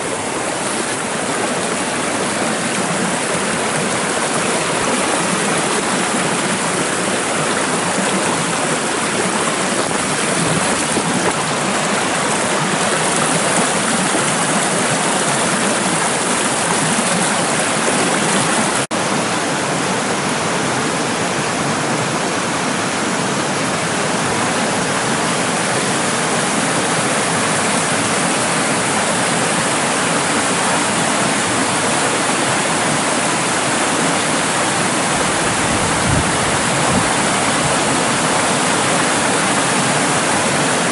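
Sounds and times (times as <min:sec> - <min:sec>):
water rushing over stones: 0:00.0 - 0:40.9.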